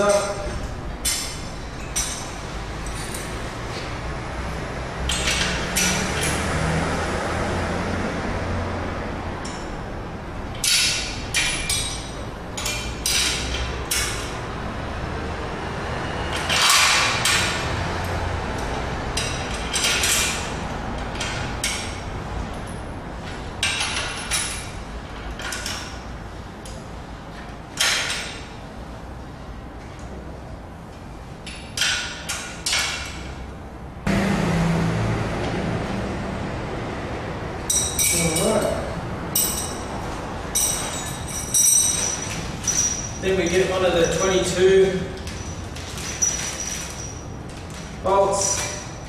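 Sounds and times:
spanners clinking on metal: 0:37.7 - 0:44.6, 0:45.2 - 0:47.4, 0:48.3 - 0:49.0.

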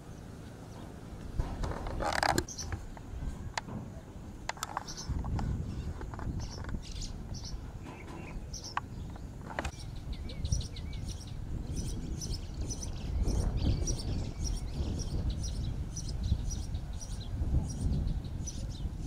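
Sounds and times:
low outdoor rumble: 0:00.0 - 0:19.0
small birds chirping: 0:00.0 - 0:19.0
sharp clicks: 0:04.5 - 0:06.8.

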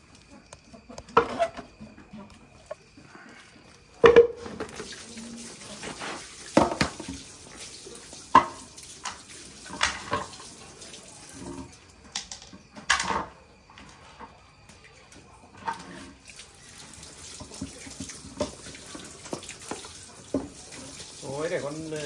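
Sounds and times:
tap water running into basin: 0:03.6 - 0:12.7, 0:14.6 - 0:22.0
plastic basins knocking: 0:04.0 - 0:05.0, 0:06.5 - 0:07.2.

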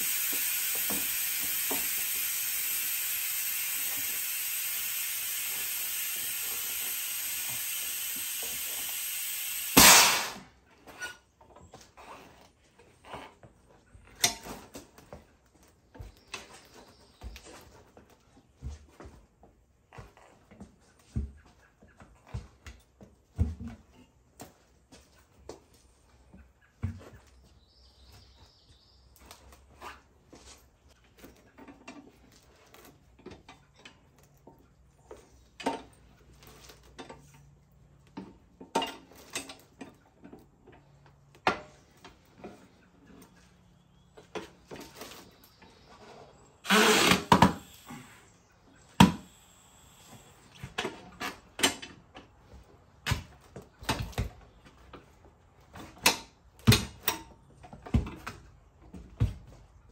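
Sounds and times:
steel bar clanking on machine: 0:09.7 - 0:10.4.

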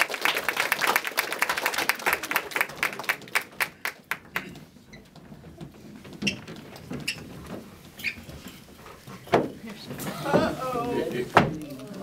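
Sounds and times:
applause: 0:00.0 - 0:04.6.

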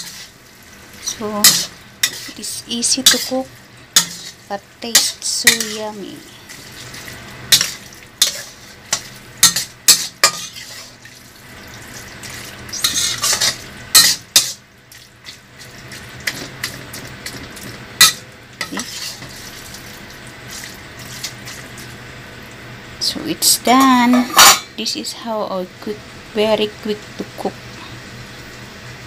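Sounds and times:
sauce sizzling: 0:00.0 - 0:24.8, 0:25.6 - 0:29.0
spatula scraping steel pan: 0:01.0 - 0:03.4, 0:04.0 - 0:06.0, 0:07.5 - 0:11.0, 0:12.7 - 0:14.6, 0:18.0 - 0:19.3.

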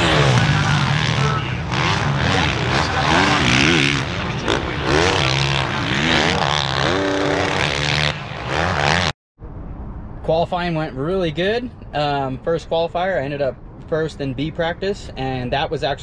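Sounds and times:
motocross bike engine revving: 0:00.0 - 0:09.2.

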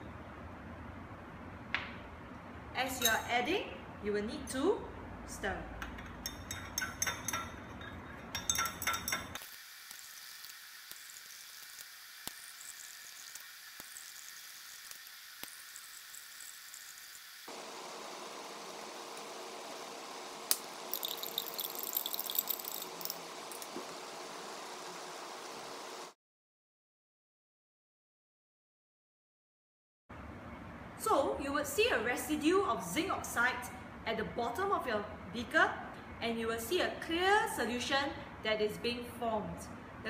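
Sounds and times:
glass rod clinking on beaker: 0:06.0 - 0:09.4, 0:20.9 - 0:23.7
light glass clinks: 0:06.0 - 0:09.4.

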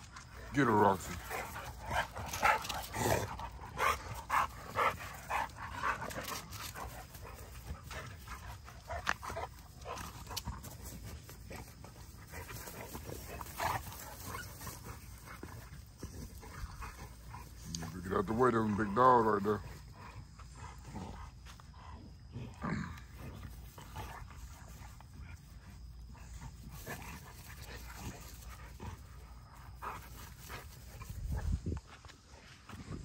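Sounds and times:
dogs growling and yelping: 0:01.3 - 0:10.7, 0:12.0 - 0:18.4, 0:22.0 - 0:24.3.

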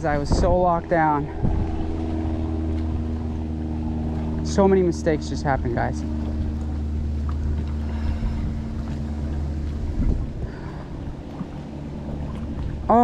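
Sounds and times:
boat motor humming: 0:00.0 - 0:13.0.

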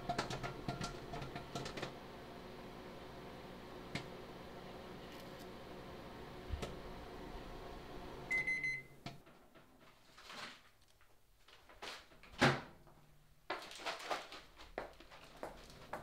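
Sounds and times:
appliance electric hum: 0:00.0 - 0:09.6.

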